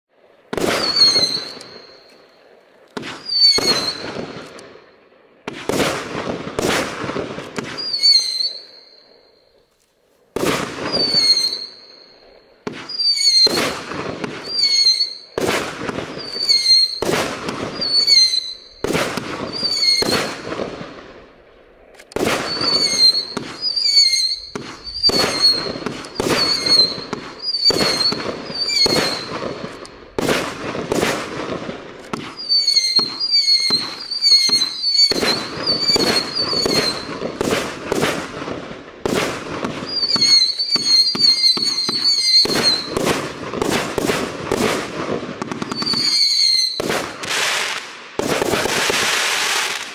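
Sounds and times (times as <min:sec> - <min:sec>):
firework launch thumps and bursts: 0:00.5 - 0:01.7, 0:03.0 - 0:04.5, 0:05.5 - 0:08.0, 0:10.4 - 0:11.3, 0:12.6 - 0:14.5, 0:15.4 - 0:16.3, 0:22.1 - 0:46.1, 0:46.8 - 0:49.9
firework high whistles: 0:00.5 - 0:04.9, 0:05.5 - 0:09.7, 0:10.3 - 0:21.1, 0:22.2 - 0:49.9.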